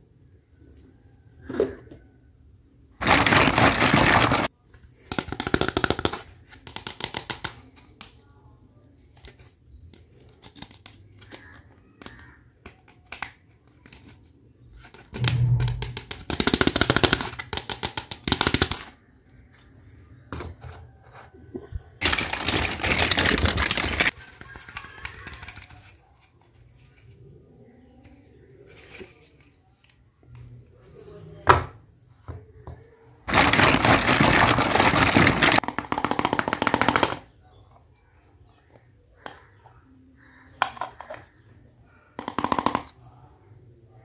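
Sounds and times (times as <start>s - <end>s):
plastic toy pieces rattling: 3.0s - 4.5s, 22.0s - 26.0s, 33.3s - 37.2s
wrapping crackling: 22.0s - 26.1s, 33.3s - 35.6s.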